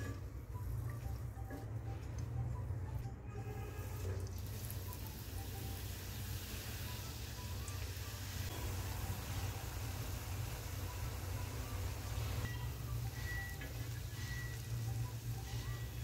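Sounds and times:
oil sizzling while deep-frying: 4.1 - 16.0.

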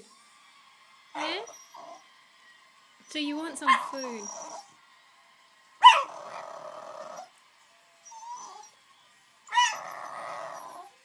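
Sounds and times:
small dog yipping and whining: 1.2 - 2.0, 3.7 - 4.7, 5.8 - 6.4, 8.0 - 8.8, 9.5 - 11.0.

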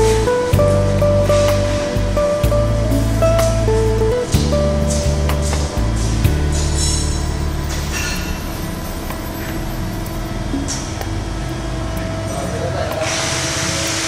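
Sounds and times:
machine humming: 0.0 - 14.0
loud steady hiss: 13.0 - 14.0.

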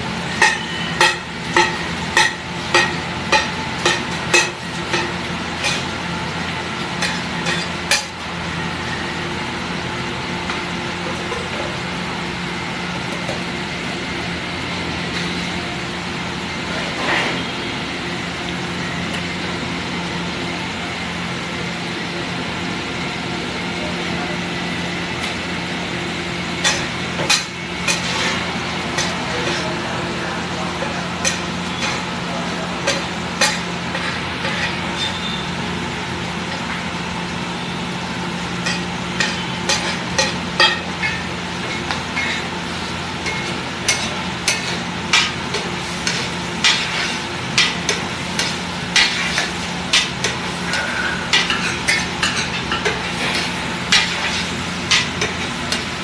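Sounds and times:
metal spatula clacking on griddle: 0.4 - 5.9, 30.8 - 32.0, 32.8 - 34.8, 38.6 - 42.4, 43.2 - 50.4, 51.3 - 55.9
vegetables sizzling on a griddle: 25.2 - 56.0.

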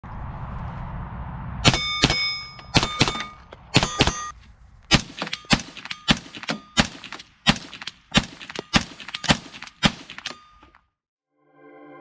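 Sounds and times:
rifle shots: 1.6 - 10.7.

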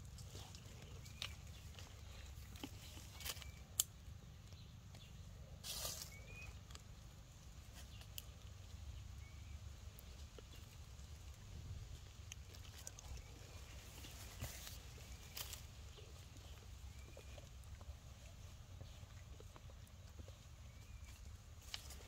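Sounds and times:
monkey chewing fruit: 0.0 - 5.2, 10.0 - 22.0
dry leaves rustling: 5.6 - 8.7, 10.1 - 17.7.

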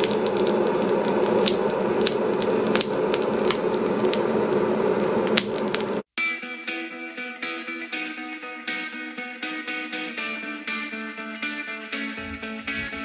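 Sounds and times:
fire crackling and popping: 0.0 - 6.0
fire rushing noise: 0.0 - 6.0, 12.2 - 13.0.

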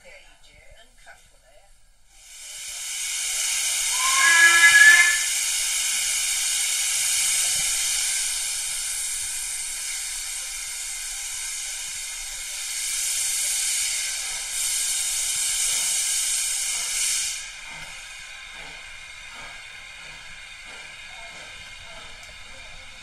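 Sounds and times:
steam locomotive hissing: 2.1 - 23.0
locomotive whistle: 3.8 - 5.5.

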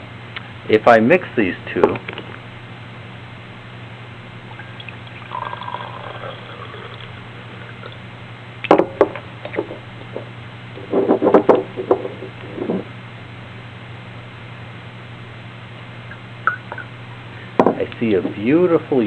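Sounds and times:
steady low hum: 0.0 - 19.0
liquid trickling into glass beaker: 4.6 - 8.0.

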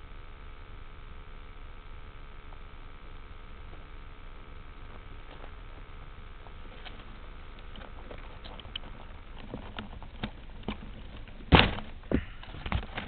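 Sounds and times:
handling clicks and rustles: 4.8 - 13.0.

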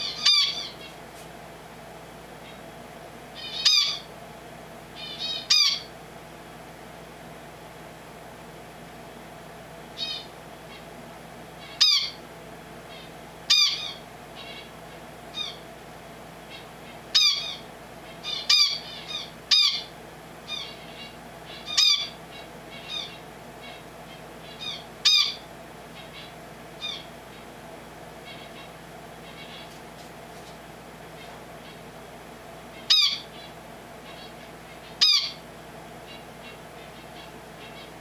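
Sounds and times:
finch chirping: 0.0 - 1.0, 3.4 - 4.1, 5.0 - 5.9, 10.0 - 10.8, 11.6 - 12.2, 12.9 - 14.7, 15.4 - 15.6, 16.5 - 19.9, 20.5 - 27.4, 28.3 - 29.8, 32.8 - 35.4, 36.1 - 38.0.

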